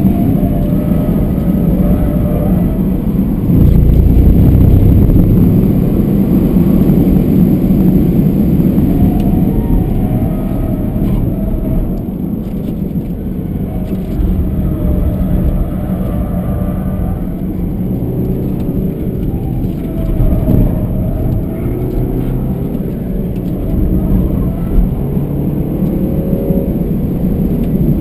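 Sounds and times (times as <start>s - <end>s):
diesel engine working hard: 0.0s - 28.0s
road and tyre noise: 0.0s - 28.0s.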